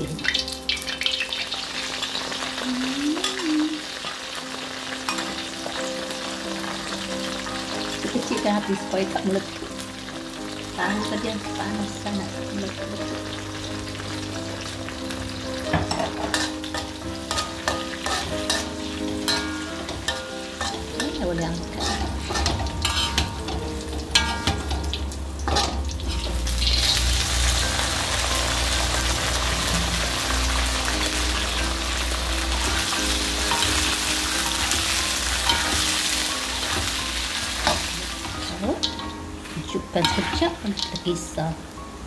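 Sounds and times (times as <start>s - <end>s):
chillies sizzling in oil: 0.0s - 42.0s
spatula scraping a wok: 15.9s - 23.5s.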